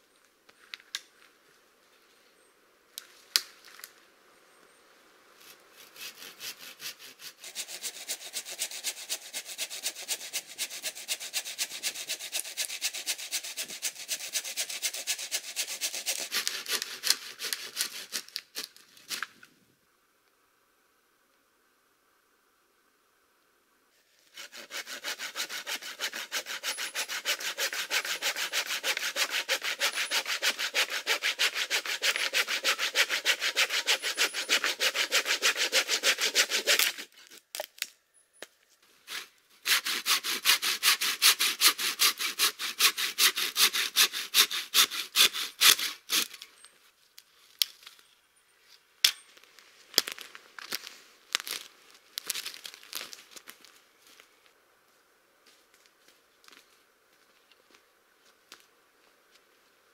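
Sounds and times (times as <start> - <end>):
hand saw cutting branch: 5.8 - 19.2, 24.3 - 37.4, 39.1 - 46.5
footsteps on dry twigs: 48.7 - 59.8.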